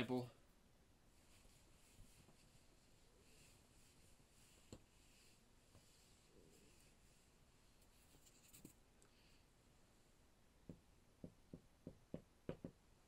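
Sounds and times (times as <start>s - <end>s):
soft eraser wipes: 1.1s - 9.5s.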